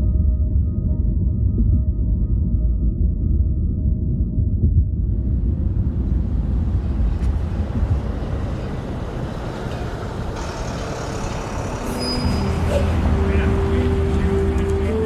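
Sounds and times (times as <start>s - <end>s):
traffic rumble: 4.8s - 15.0s.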